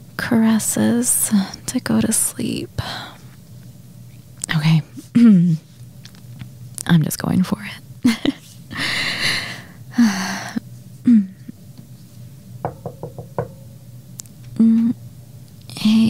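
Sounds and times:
knocks on a door: 0:12.6 - 0:13.6.

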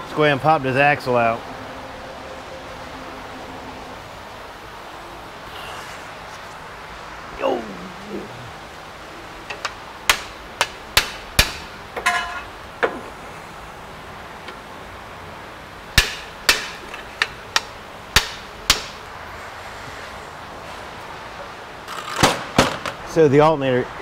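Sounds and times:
hammer striking steel: 0:10.1 - 0:12.5, 0:16.0 - 0:19.0.

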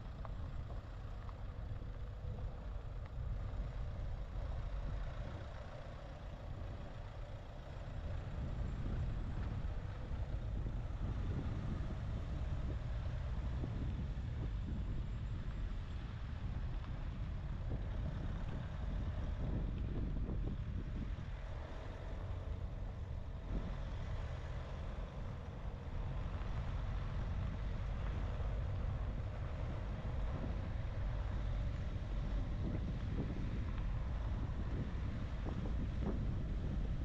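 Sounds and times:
car engine and tyres rumbling: 0:00.0 - 0:37.0
wind noise: 0:08.0 - 0:24.2, 0:25.9 - 0:37.0.

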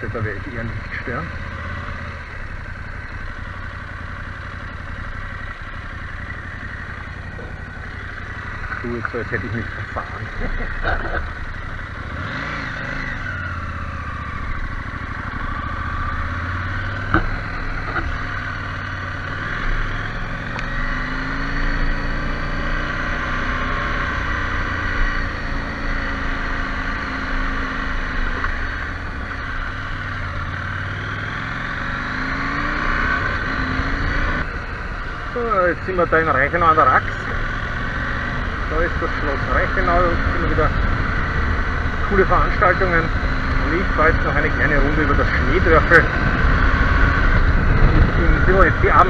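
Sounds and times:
motorcycle engine revving: 0:00.0 - 0:49.0.

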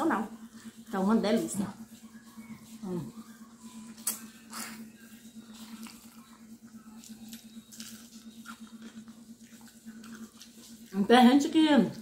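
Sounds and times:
steady low hum: 0:00.0 - 0:12.0
person chewing and slurping: 0:04.0 - 0:10.9.

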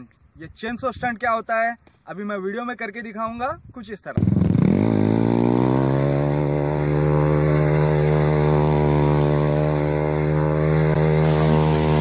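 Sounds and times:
motorcycle engine at high revs: 0:04.2 - 0:12.0
wheel spinning in dirt: 0:04.2 - 0:12.0.

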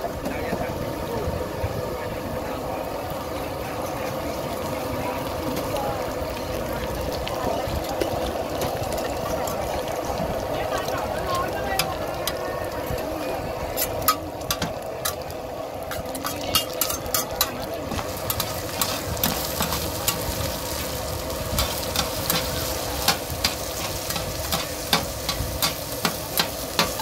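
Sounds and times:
eggs sizzling in oil: 0:02.4 - 0:27.0
metal spatulas clicking on pan: 0:15.9 - 0:17.7, 0:21.6 - 0:27.0.

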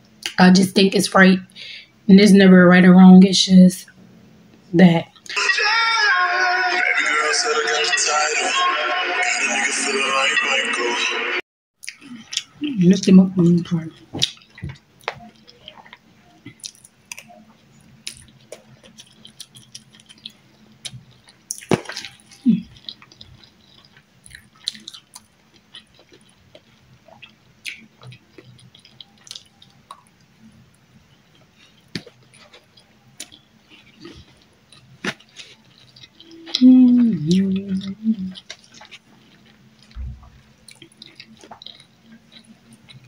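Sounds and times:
wet chewing and mouth clicks: 0:11.8 - 0:12.6, 0:13.9 - 0:43.0.

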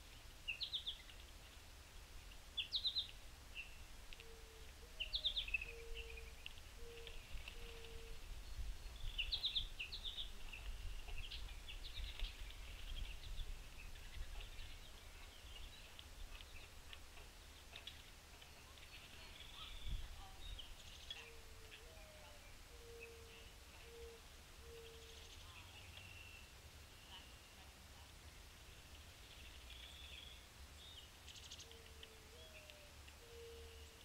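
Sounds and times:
birds chirping and calling: 0:02.6 - 0:27.6, 0:29.1 - 0:34.0
low hoot-like bird notes: 0:04.1 - 0:08.4, 0:21.1 - 0:25.6, 0:31.5 - 0:34.0.

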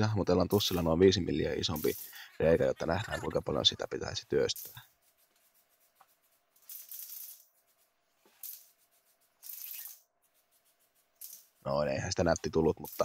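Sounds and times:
marker scraping on metal: 0:03.9 - 0:13.0.

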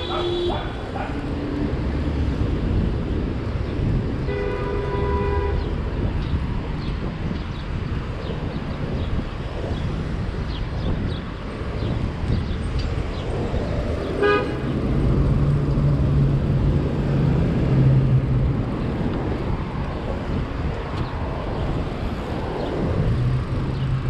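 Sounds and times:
vehicle horn toot: 0:00.0 - 0:00.7, 0:04.3 - 0:05.7, 0:14.2 - 0:14.6
street traffic noise: 0:00.0 - 0:24.0.

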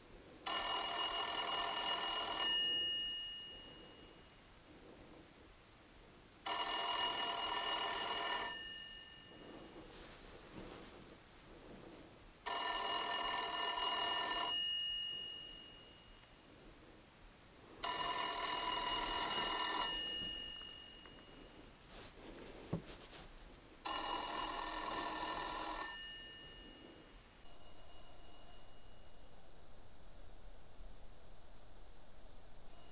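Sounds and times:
telephone bell ringing: 0:00.4 - 0:04.4, 0:06.4 - 0:09.8, 0:12.5 - 0:16.2, 0:17.8 - 0:21.6, 0:23.8 - 0:29.3.

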